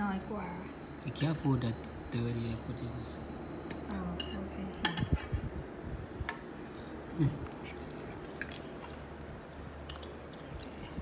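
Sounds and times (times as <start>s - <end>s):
quiet chewing: 6.6s - 11.0s.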